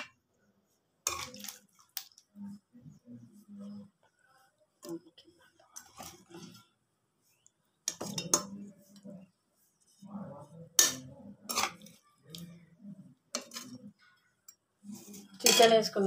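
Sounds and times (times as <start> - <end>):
metal spoon clinking on pot: 10.8 - 11.9, 15.4 - 16.0.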